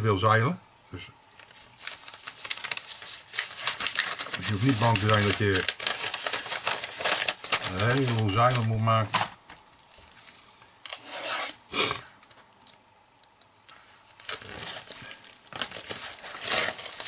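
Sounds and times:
plastic shrink-wrap crinkling and tearing: 1.4 - 8.8, 13.7 - 17.0.

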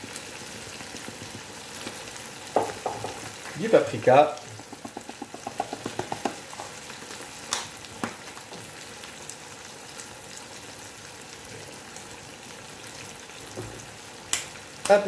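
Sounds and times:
food sizzling in a frying pan: 0.0 - 15.0.

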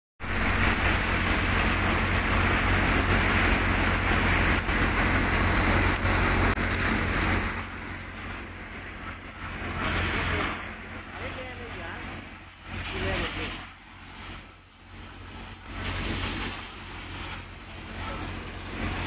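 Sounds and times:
thresher blower rushing: 0.2 - 8.2
engine and machine drone: 0.2 - 19.0.

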